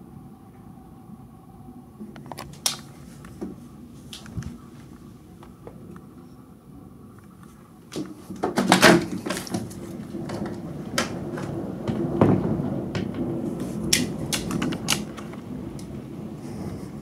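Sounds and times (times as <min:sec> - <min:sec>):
storm outside: 0:00.0 - 0:17.0.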